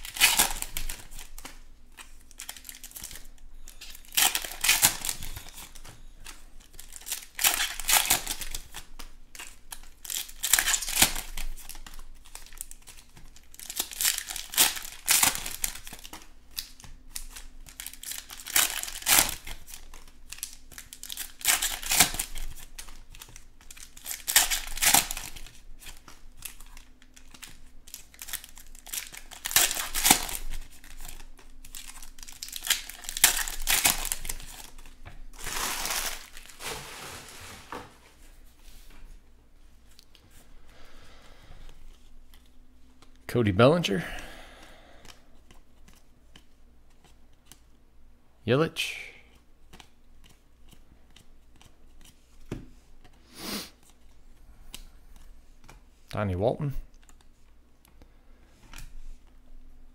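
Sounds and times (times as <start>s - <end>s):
foil packs being torn open: 0.0s - 5.9s, 6.6s - 37.8s
wrappers crinkling: 0.0s - 38.2s.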